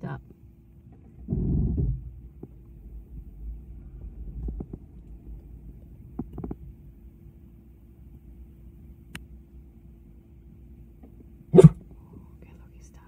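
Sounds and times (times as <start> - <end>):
car idling: 0.0 - 13.0
low thump: 1.2 - 6.8.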